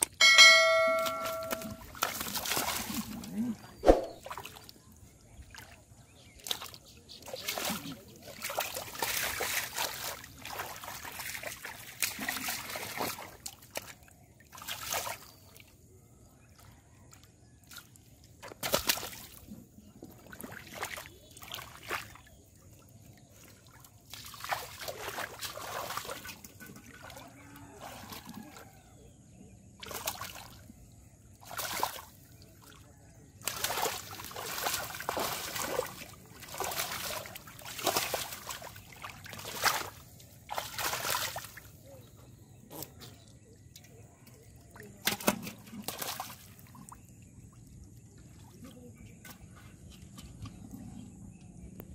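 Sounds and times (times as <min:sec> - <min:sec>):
shallow water splashing: 0:00.6 - 0:15.7, 0:23.2 - 0:28.6, 0:33.4 - 0:41.8
fish thrashing in muddy water: 0:01.5 - 0:04.6, 0:07.3 - 0:15.3, 0:24.1 - 0:28.6, 0:31.4 - 0:32.8, 0:33.4 - 0:41.8, 0:45.0 - 0:47.0.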